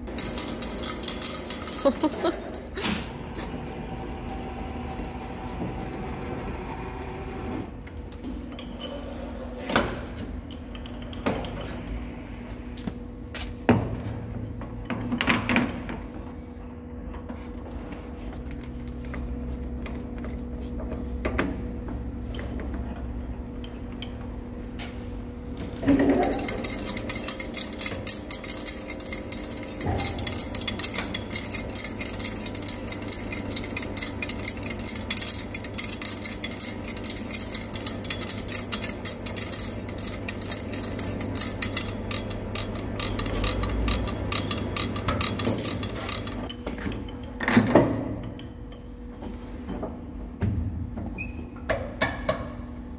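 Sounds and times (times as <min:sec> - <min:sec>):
lathe running: 0:26.4 - 0:46.4.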